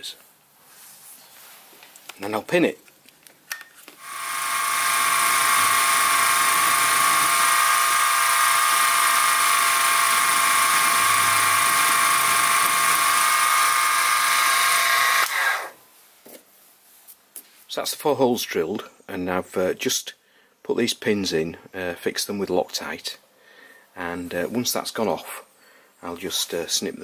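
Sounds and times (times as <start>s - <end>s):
mill spindle high whine: 4.0s - 15.7s.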